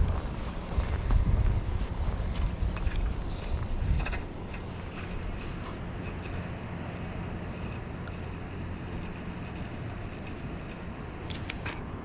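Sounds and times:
sharp clicks: 4.0 - 11.8.

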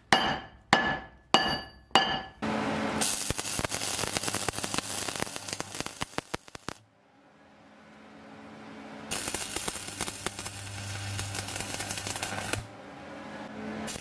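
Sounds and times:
welding arc crackling: 3.0 - 6.8, 9.1 - 12.7
low steady hum: 6.8 - 13.9.

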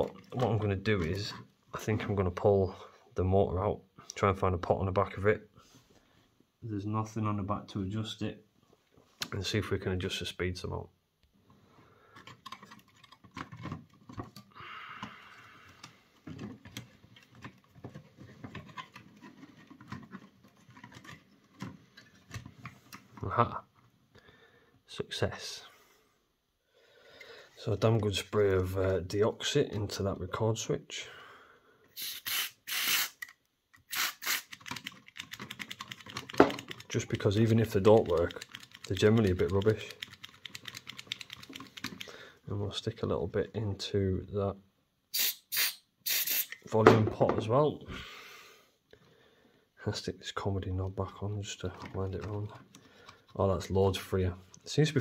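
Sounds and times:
small clicks and rattles: 12.2 - 14.5, 34.5 - 42.1
aerosol spray hissing: 32.0 - 33.2, 45.2 - 46.6.

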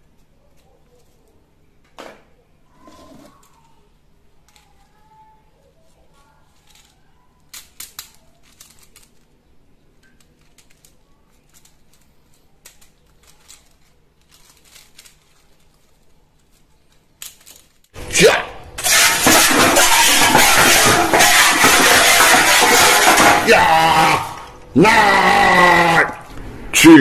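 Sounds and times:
plastic toy parts clicking: 4.4 - 5.0, 6.5 - 17.9
loud dense noise: 18.0 - 27.0.

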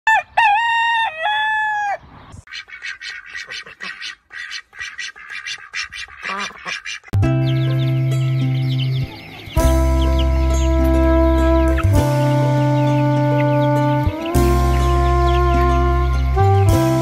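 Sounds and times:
rooster crowing: 0.1 - 2.0
hens clucking: 0.2 - 8.0
loud steady music chord: 7.2 - 17.0.

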